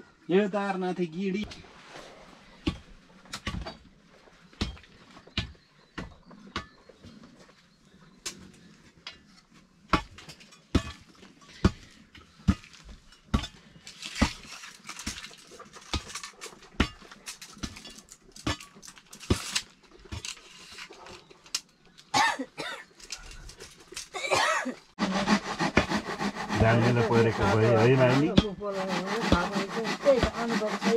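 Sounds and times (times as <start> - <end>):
hoe scraping soil: 25.0 - 30.9
hoe chopping hard earth: 25.6 - 30.9.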